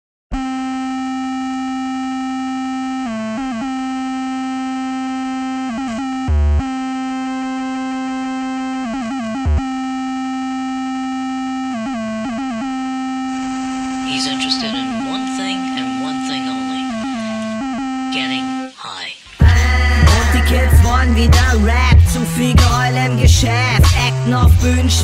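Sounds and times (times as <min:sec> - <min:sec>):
held synthesizer note: 0:00.4 - 0:21.4
deep bass hits: 0:19.4 - 0:25.0.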